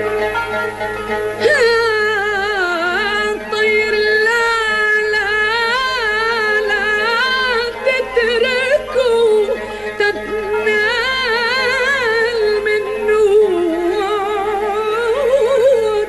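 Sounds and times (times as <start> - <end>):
instrumental accompaniment: 0.0 - 16.0
woman singing ornamented notes: 1.4 - 16.0.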